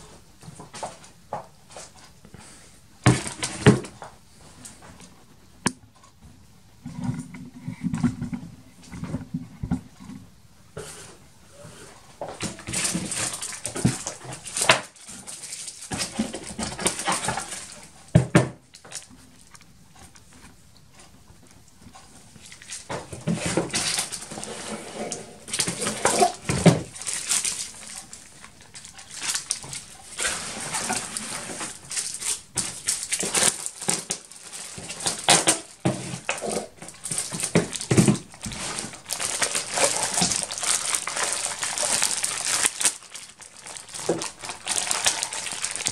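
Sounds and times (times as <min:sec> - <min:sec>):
plastic bags crinkling: 0:12.2 - 0:19.6, 0:22.4 - 0:45.9.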